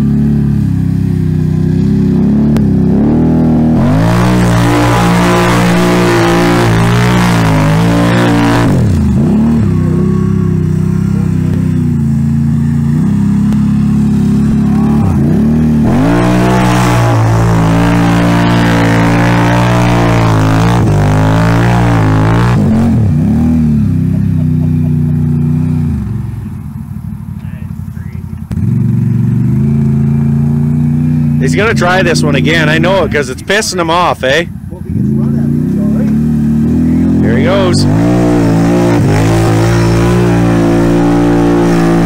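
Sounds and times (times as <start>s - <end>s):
atv engine revving: 0.0s - 42.0s.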